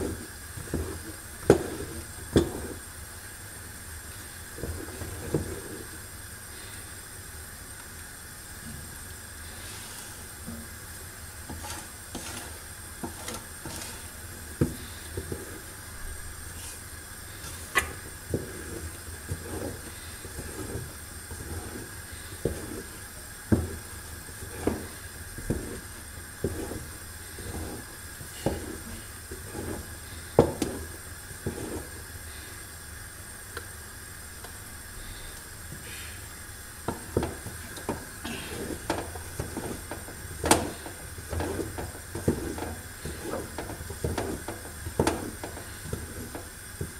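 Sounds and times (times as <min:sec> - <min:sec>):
steady hiss: 0:00.0 - 0:46.9
wooden spoon knocking on pot: 0:36.9 - 0:46.9.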